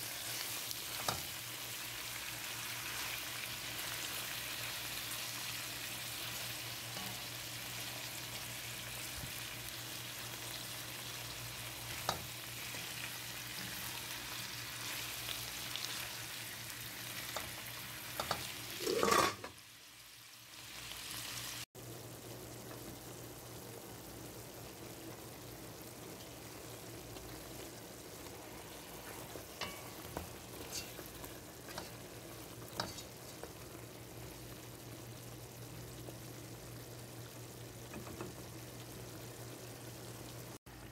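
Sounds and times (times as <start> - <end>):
meat and onions sizzling in oil: 0.0 - 40.9
spatula stirring: 28.9 - 32.1, 32.7 - 33.5.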